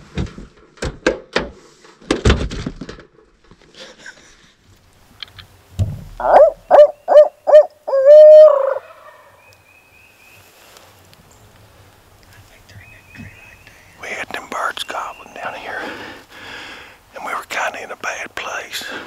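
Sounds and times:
owl hooting: 0:06.2 - 0:09.4.

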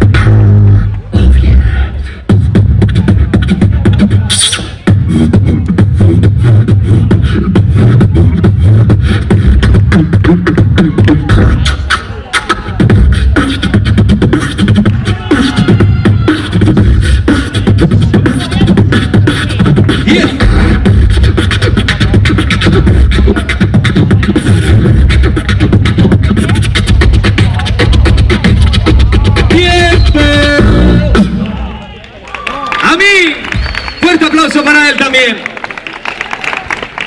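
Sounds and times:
beatboxing into a microphone: 0:00.0 - 0:31.7.

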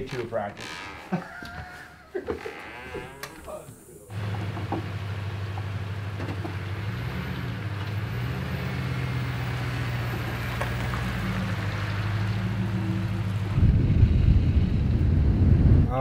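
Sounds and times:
truck engine idling: 0:04.1 - 0:15.5.

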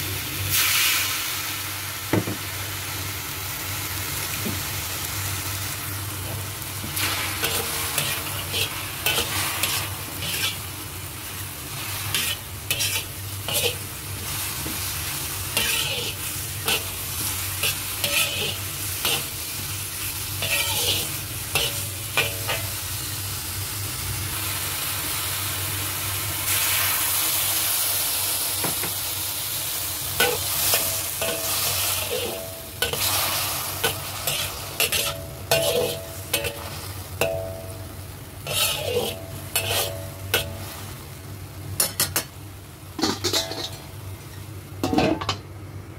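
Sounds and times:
mushrooms sizzling in a wok: 0:00.0 - 0:45.9
metal spatula scraping a wok: 0:06.9 - 0:22.8, 0:30.2 - 0:37.7, 0:38.4 - 0:40.9, 0:43.0 - 0:43.9.

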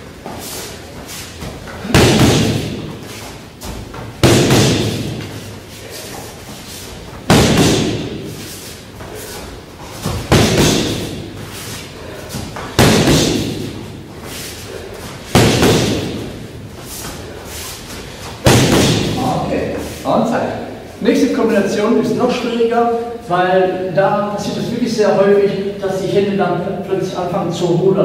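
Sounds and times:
boxing gloves striking pads: 0:01.4 - 0:05.5, 0:07.1 - 0:08.4, 0:09.9 - 0:11.6, 0:12.4 - 0:13.9, 0:15.3 - 0:16.5, 0:18.4 - 0:19.3.

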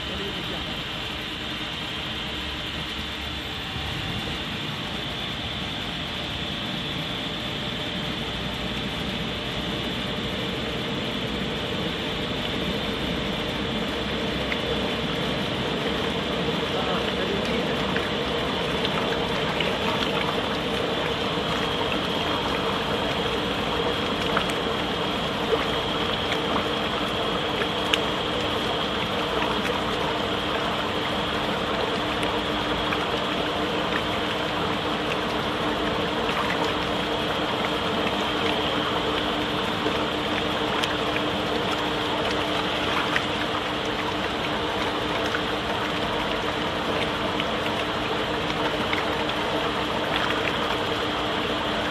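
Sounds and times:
mixer motor hum: 0:00.0 - 0:51.9
second lower hum: 0:00.0 - 0:51.9
thick batter churning: 0:08.4 - 0:51.9.

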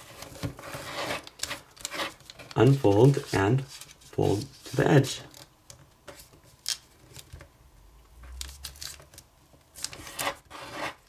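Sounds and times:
paper crinkling and rustling: 0:00.0 - 0:05.5, 0:08.3 - 0:11.0.

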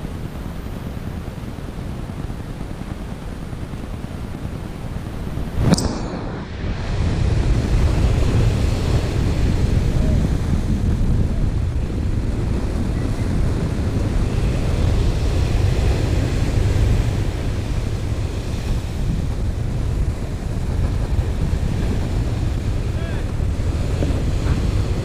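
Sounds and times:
wind buffeting microphone: 0:00.0 - 0:25.0
breaking surf: 0:05.3 - 0:25.0.

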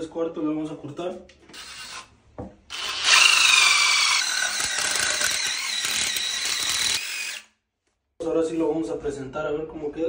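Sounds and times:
drill cutting plastic pipe: 0:01.5 - 0:02.1, 0:02.7 - 0:07.5.

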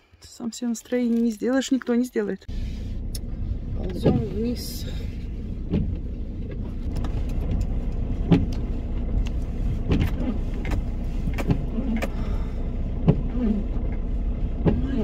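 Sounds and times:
engine and tyre rumble: 0:00.1 - 0:15.0
windshield wipers knocking: 0:03.8 - 0:04.7, 0:05.6 - 0:12.2, 0:12.9 - 0:15.0.

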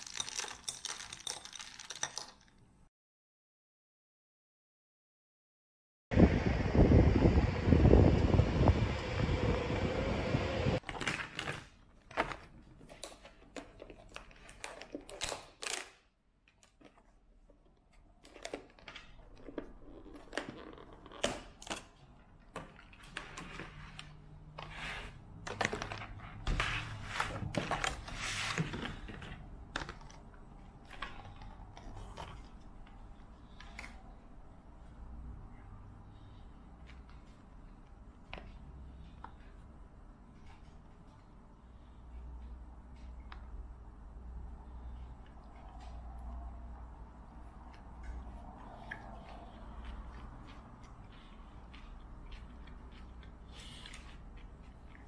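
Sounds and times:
wind noise: 0:06.1 - 0:10.8.

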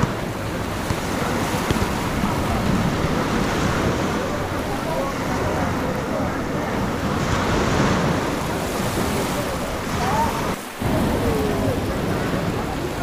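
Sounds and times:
faint voices of people: 0:00.0 - 0:13.0
sea waves washing onto shore: 0:00.0 - 0:13.0
wind on microphone: 0:00.0 - 0:13.0.

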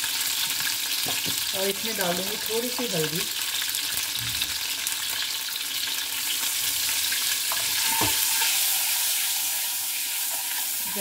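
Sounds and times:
eggs sizzling in hot oil: 0:00.0 - 0:11.0.

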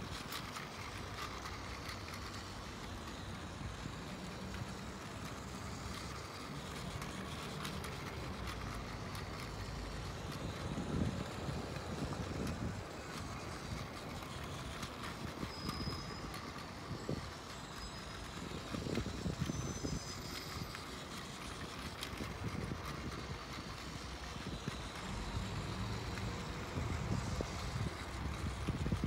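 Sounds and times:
traffic hum: 0:00.0 - 0:29.0
wind rumbling on microphone: 0:26.5 - 0:29.0.

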